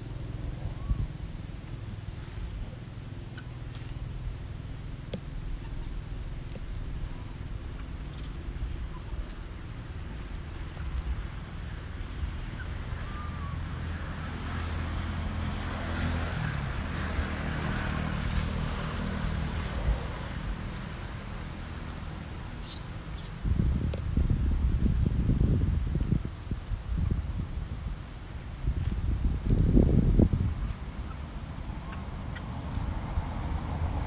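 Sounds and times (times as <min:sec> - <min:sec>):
traffic engine hum: 0:00.0 - 0:34.0
wind rumbling on microphone: 0:00.0 - 0:34.0
brief high squeaks: 0:22.6 - 0:23.4.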